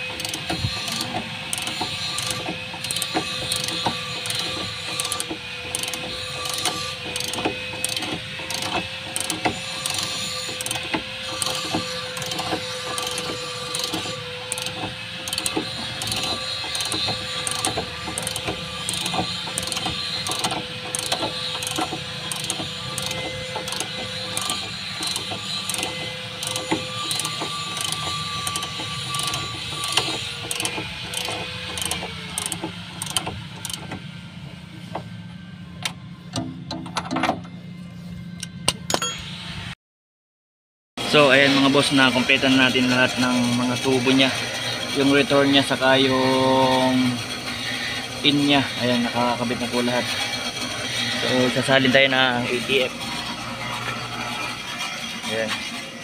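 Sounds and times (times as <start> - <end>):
wrench clicking on metal fittings: 0.2 - 33.8.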